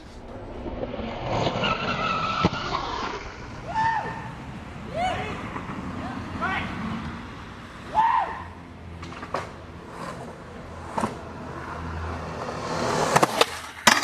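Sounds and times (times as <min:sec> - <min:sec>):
skateboard wheels rolling on concrete: 0:00.0 - 0:14.0
skateboard clacks: 0:12.3 - 0:14.0.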